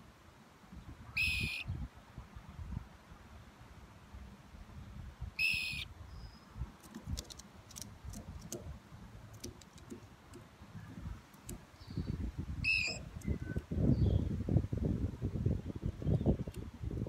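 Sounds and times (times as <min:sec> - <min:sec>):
bird whistled calls: 0:01.2 - 0:01.7, 0:05.4 - 0:06.5, 0:12.6 - 0:14.2
faint high ticks: 0:11.3 - 0:11.6.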